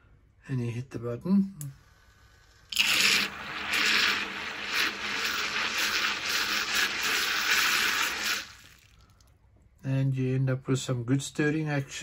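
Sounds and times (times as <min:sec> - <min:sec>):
water churning: 0:02.8 - 0:08.9.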